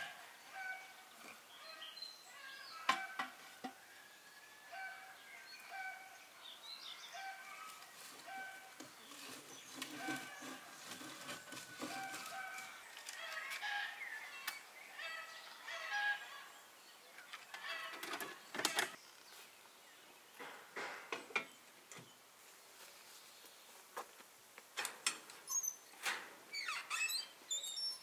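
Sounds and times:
birds calling: 4.6 - 22.3.

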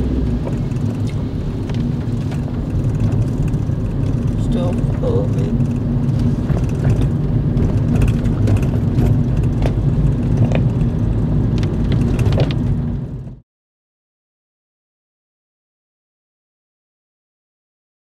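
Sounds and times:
car engine and tyre rumble: 0.0 - 13.4.

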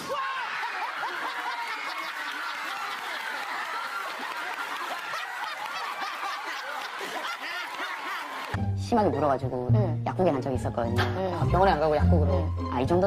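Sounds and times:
audience laughing: 0.2 - 8.6.

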